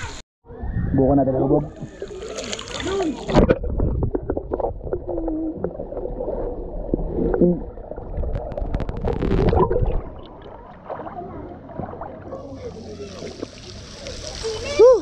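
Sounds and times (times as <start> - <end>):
bubbling and gurgling water: 0.5 - 14.8
muffled underwater rumble: 3.2 - 14.7
muffled voice sounds underwater: 4.9 - 8.0.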